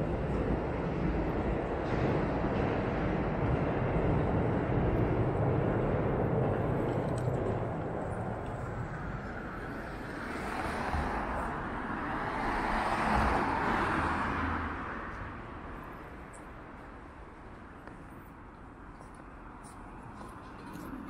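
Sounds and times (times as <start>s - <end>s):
low traffic rumble: 0.0s - 21.0s
car passing close: 8.5s - 15.2s.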